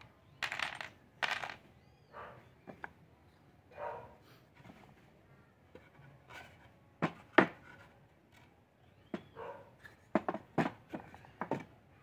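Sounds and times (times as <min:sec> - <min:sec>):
wooden pieces knocking together: 0:00.4 - 0:01.7, 0:10.1 - 0:11.7.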